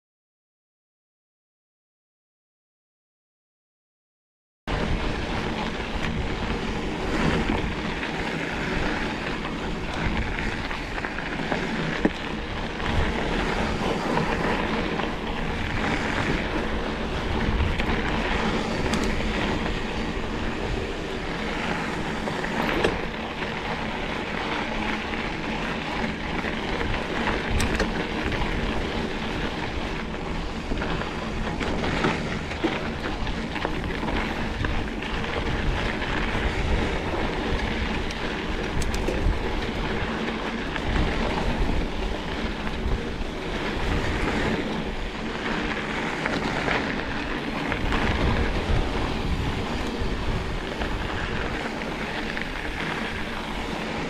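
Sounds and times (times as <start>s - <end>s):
bike tyre noise and rattling: 4.7s - 54.0s
wind rushing over microphone: 4.7s - 54.0s.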